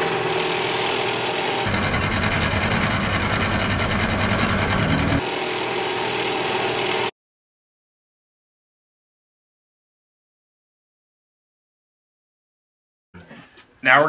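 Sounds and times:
bench grinder grinding metal: 0.0 - 7.1.

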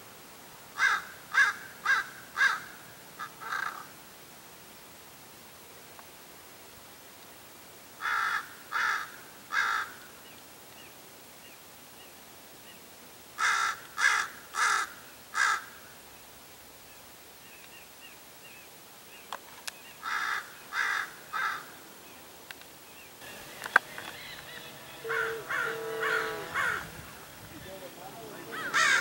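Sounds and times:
raven cawing: 0.8 - 4.0, 8.0 - 10.1, 13.4 - 15.9, 20.0 - 21.8, 23.2 - 29.0
steady humming tone: 23.2 - 29.0.

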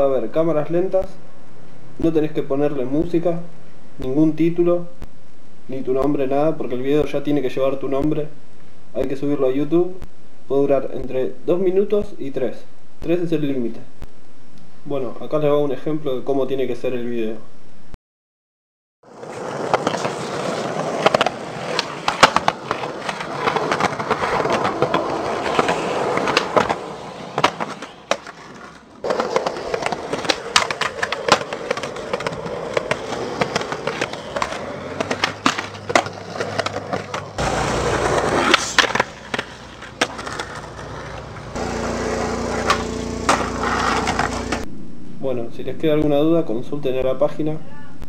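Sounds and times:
skateboard wheels rolling on concrete: 19.0 - 44.7
skateboard grinding on ledges: 19.1 - 44.6
skateboard clacks popping and landing: 19.2 - 44.6
low hum: 37.1 - 46.0.

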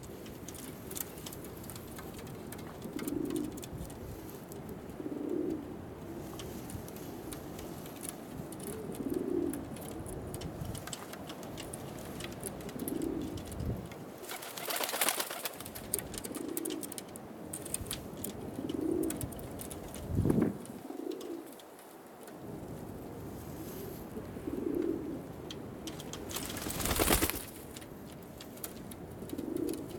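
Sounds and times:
pigeons cooing: 2.0 - 21.8, 23.7 - 27.5, 29.0 - 29.9
rustling: 25.9 - 29.9.

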